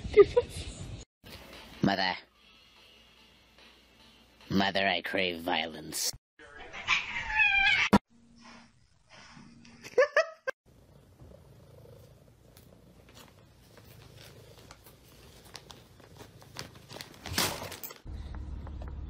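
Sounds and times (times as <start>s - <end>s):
plastic bag crinkling: 14.0s - 18.1s.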